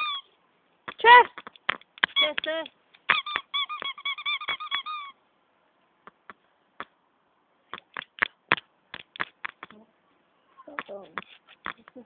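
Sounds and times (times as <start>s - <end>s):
sharp knocks and clicks: 0.9s - 2.7s, 7.7s - 9.8s.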